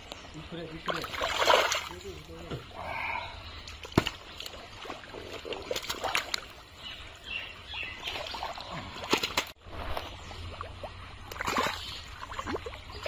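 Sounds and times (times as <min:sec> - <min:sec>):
mud squelching and splashing: 0:00.8 - 0:02.2, 0:03.0 - 0:06.8, 0:07.9 - 0:13.0
fish slapping: 0:09.0 - 0:09.6.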